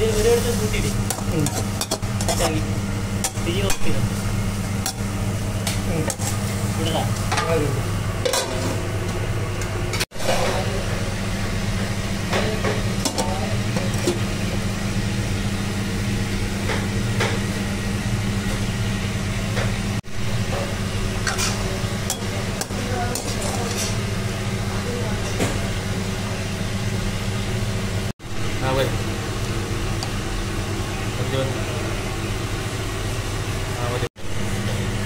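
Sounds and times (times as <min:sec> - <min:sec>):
leaves stir-frying: 0:00.0 - 0:08.9.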